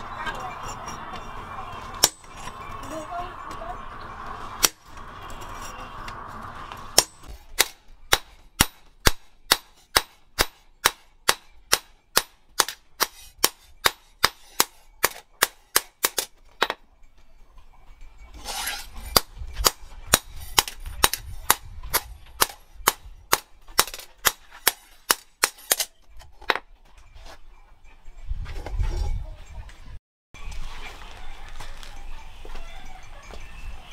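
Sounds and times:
hammer striking steel on anvil: 0.3 - 2.8, 4.6 - 16.8, 18.4 - 26.6.

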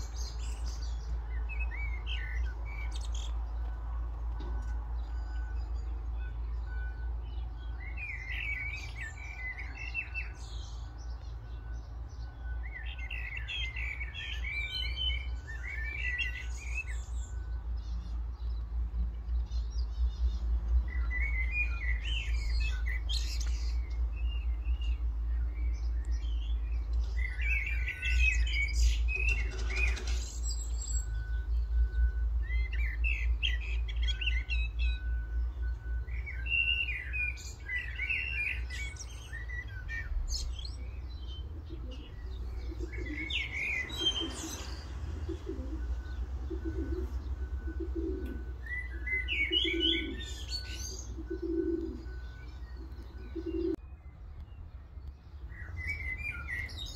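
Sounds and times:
songbirds chirping: 0.0 - 56.9
pigeons cooing: 27.4 - 30.3, 41.0 - 53.8.

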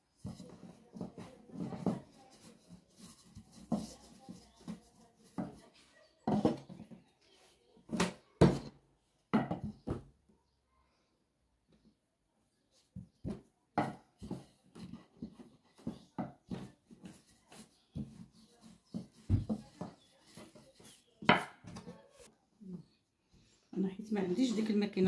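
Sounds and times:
rolling pin working dough on board: 0.2 - 6.7, 13.3 - 22.0.

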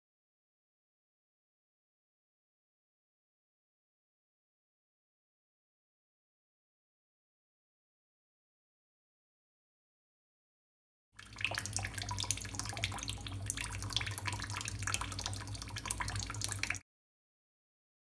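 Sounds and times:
low steady hum: 11.2 - 16.8
water trickling from tap: 11.2 - 16.8.

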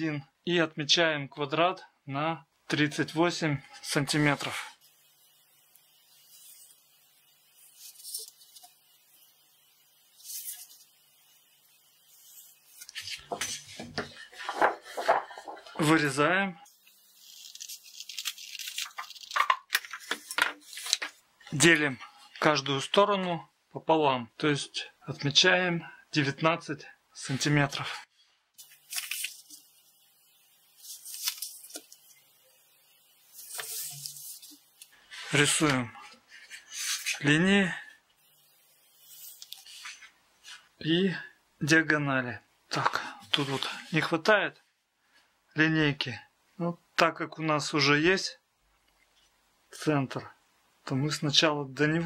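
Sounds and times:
pencil scratching on paper: 10.1 - 10.9.

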